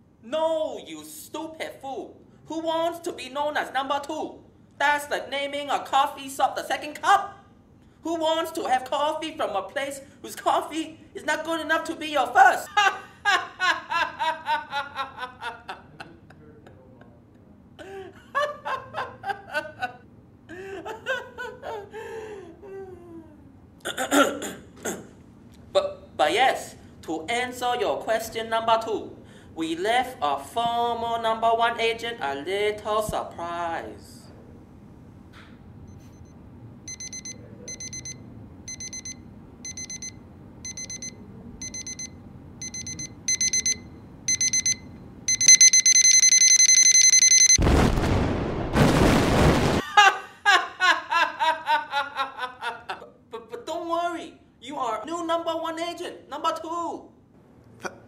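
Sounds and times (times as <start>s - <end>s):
person laughing heartily: 12.7s - 17.2s, 17.8s - 23.5s, 49.8s - 53.2s
electronic alarm beeping: 35.9s - 47.6s.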